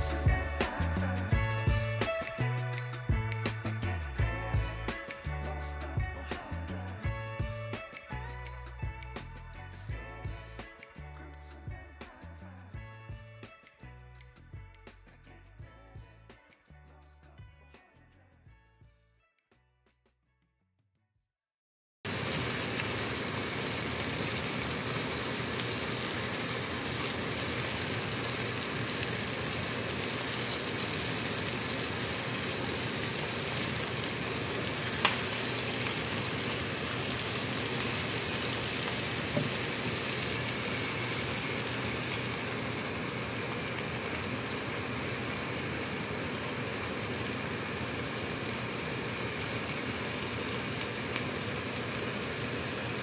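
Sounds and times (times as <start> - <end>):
meat and vegetables sizzling in pan: 0.0 - 11.1, 22.1 - 53.0.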